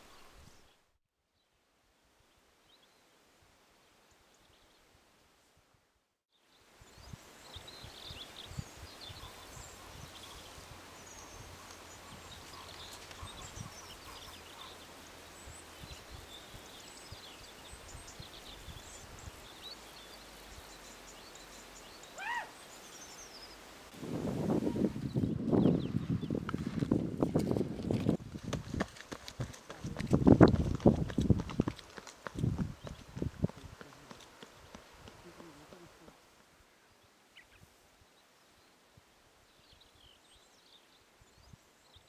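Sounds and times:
small birds chirping: 6.4s - 23.8s, 24.8s - 26.6s.

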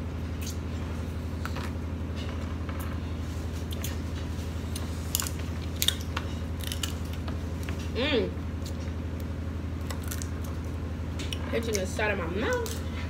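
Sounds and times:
steady low hum: 0.0s - 13.0s
crab shell breaking by hand: 9.8s - 10.6s.

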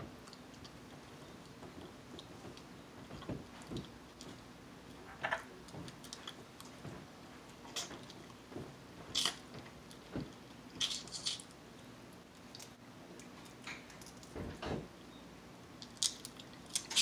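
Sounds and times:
crab shell crunching: 10.8s - 11.5s, 15.8s - 17.0s.

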